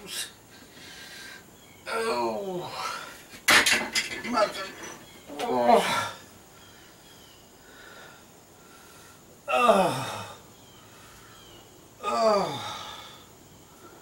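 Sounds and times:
man groaning: 5.3s - 6.2s, 9.5s - 10.4s, 12.0s - 13.1s.

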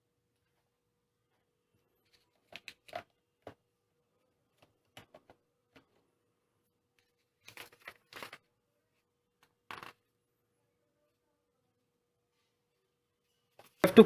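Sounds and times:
paper rustling: 7.0s - 8.5s.

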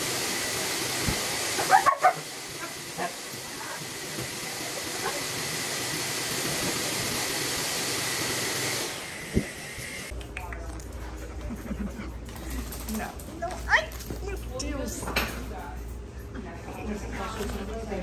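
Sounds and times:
grooming equipment hissing: 0.0s - 10.1s
dog barking: 1.6s - 3.2s.

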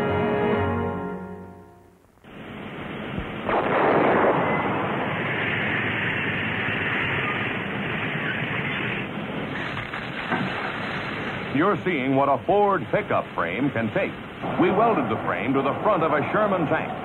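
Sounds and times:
tank engine and tracks: 3.6s - 17.0s.

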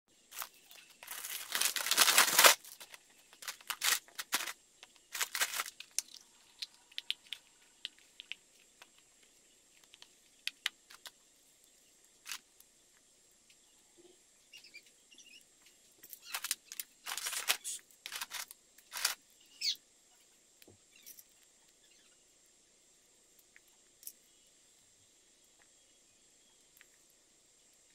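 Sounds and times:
plastic bag crinkling: 0.3s - 8.3s, 16.2s - 19.2s
plastic parts clicking: 0.3s - 9.0s, 16.0s - 19.2s.

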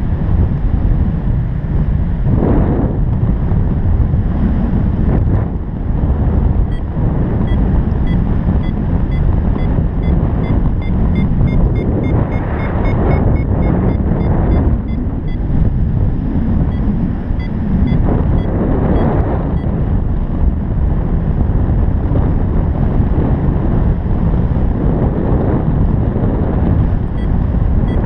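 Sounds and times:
wind buffeting microphone: 0.0s - 28.0s
variometer short high beeps: 6.7s - 15.5s, 16.7s - 19.7s.

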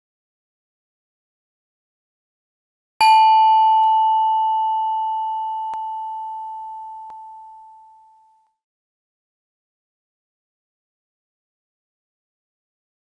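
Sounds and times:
bell-like chime ringing: 3.0s - 8.5s.

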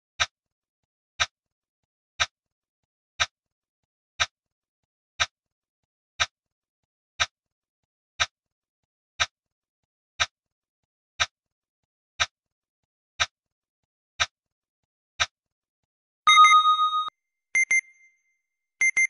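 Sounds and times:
timer ticking: 16.3s - 18.0s, 18.8s - 19.0s.

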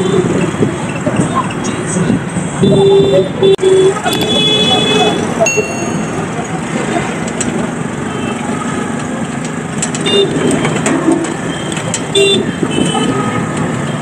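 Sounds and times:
busy street traffic: 0.0s - 14.0s
vehicle horn toots: 2.6s - 5.3s.

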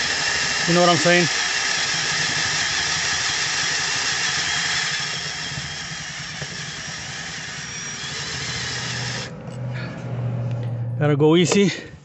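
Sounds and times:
electric drill boring metal: 0.0s - 9.3s.

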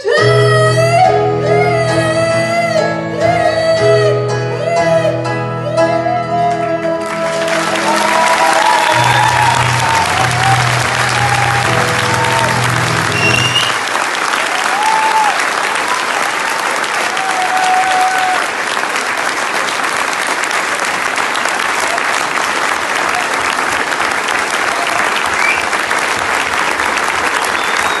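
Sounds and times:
audience applauding: 7.0s - 28.0s.

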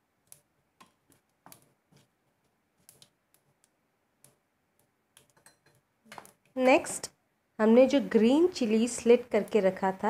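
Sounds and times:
spices crackling in hot oil: 7.8s - 10.0s.

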